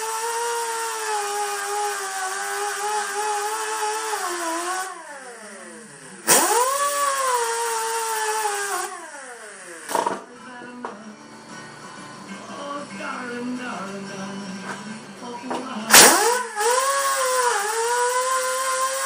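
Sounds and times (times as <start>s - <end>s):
grinder whining: 0.0s - 10.2s, 15.9s - 19.0s.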